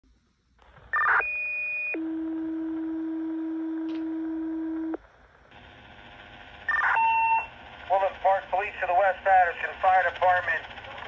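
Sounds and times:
two-tone radio page: 0:06.7 - 0:10.7.

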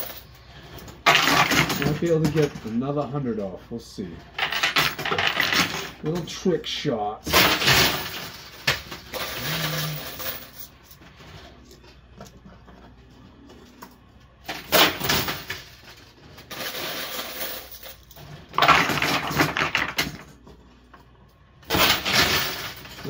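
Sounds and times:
coins and chips clattering: 0:00.0 - 0:02.8, 0:04.3 - 0:06.3, 0:07.3 - 0:11.4, 0:14.4 - 0:20.4, 0:21.6 - 0:23.0
coins dropping clicks: 0:04.4 - 0:06.0, 0:07.3 - 0:11.0, 0:14.4 - 0:20.4, 0:21.7 - 0:23.0.

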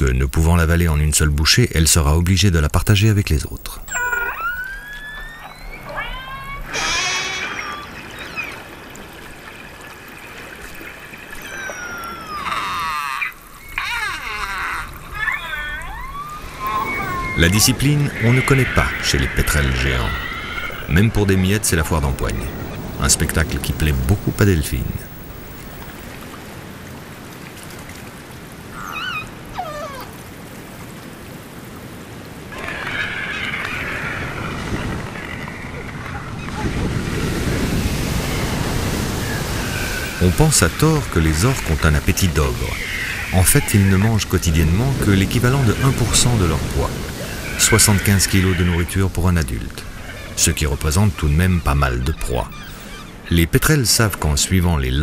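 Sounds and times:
steady hiss of water: 0:00.0 - 0:35.8, 0:36.8 - 0:55.0
killer whales calling underwater: 0:03.8 - 0:08.8, 0:11.3 - 0:26.0, 0:32.5 - 0:36.8, 0:39.2 - 0:53.3.

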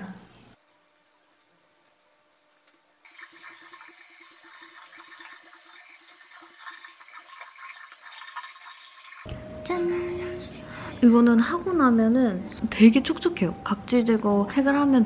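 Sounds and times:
tap water running into sink: 0:03.1 - 0:09.3.

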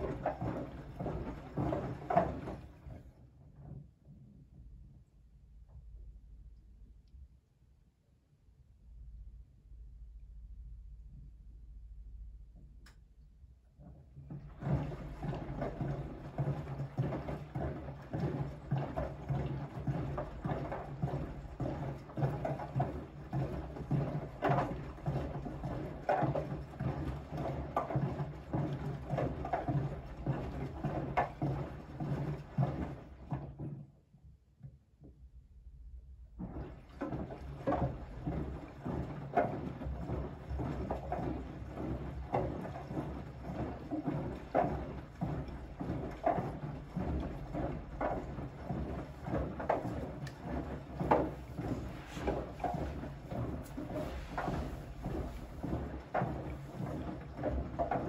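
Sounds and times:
water sloshing in washing machine: 0:00.0 - 0:03.8, 0:13.9 - 0:33.9, 0:36.3 - 0:58.0
washing machine low hum: 0:00.0 - 0:06.9, 0:09.0 - 0:33.9, 0:34.6 - 0:58.0.

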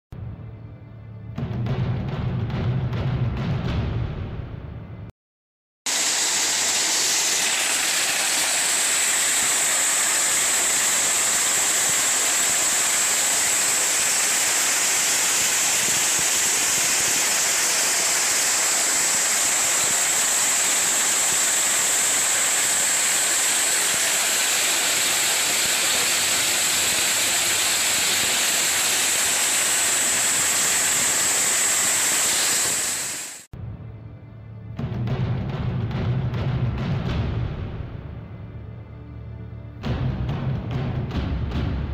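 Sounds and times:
water jet spraying: 0:05.9 - 0:33.5.

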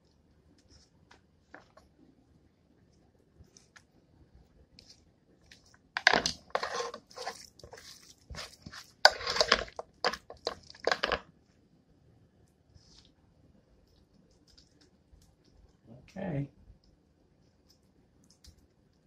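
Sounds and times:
spoon scraping a bowl: 0:06.0 - 0:11.1.

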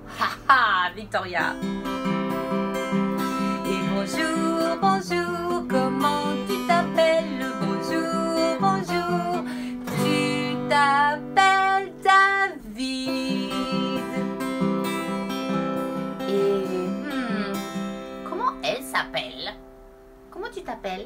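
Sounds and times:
acoustic guitar strumming: 0:00.6 - 0:20.3
woman singing wavering notes: 0:03.5 - 0:15.2, 0:16.0 - 0:17.9.

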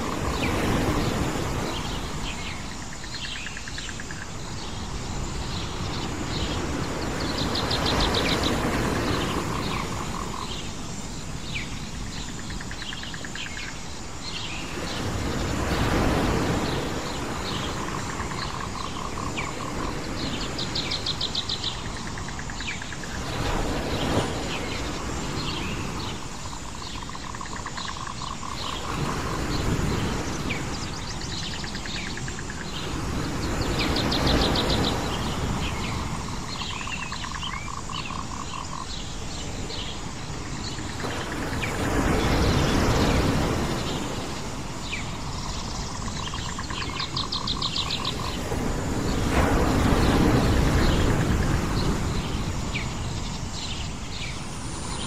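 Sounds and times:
small birds chirping: 0:00.0 - 0:55.0
waves washing on shore: 0:00.0 - 0:55.0.

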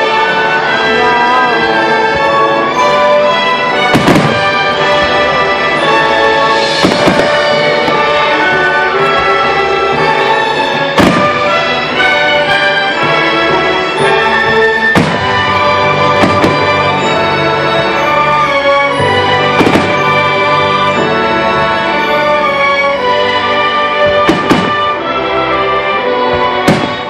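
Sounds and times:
orchestral music: 0:00.0 - 0:27.0
firework shells booming: 0:03.7 - 0:22.4, 0:23.4 - 0:25.1, 0:26.3 - 0:27.0.

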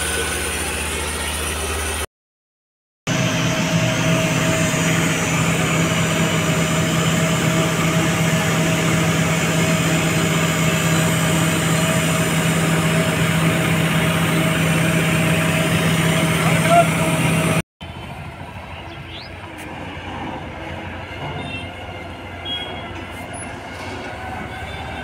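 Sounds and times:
diesel engine idling: 0:00.0 - 0:02.1, 0:03.1 - 0:25.0.

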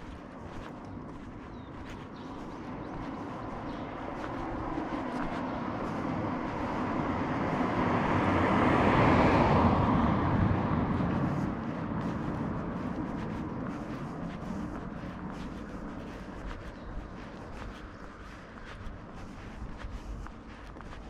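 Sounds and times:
vehicle passing close by: 0:00.0 - 0:18.4.

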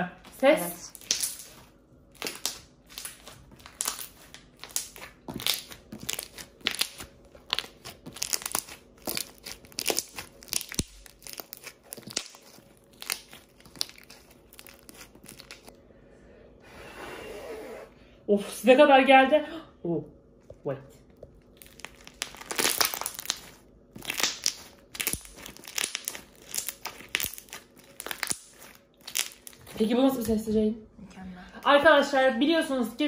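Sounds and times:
slime squelching and popping: 0:00.2 - 0:15.7, 0:21.1 - 0:29.8.

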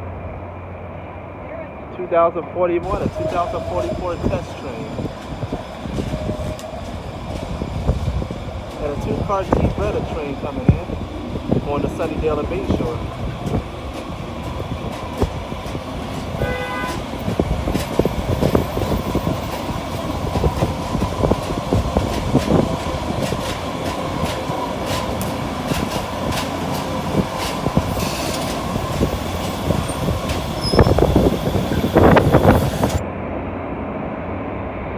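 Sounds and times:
light-rail train rumbling: 0:00.0 - 0:34.9
wheels clicking over rails: 0:02.8 - 0:33.0.

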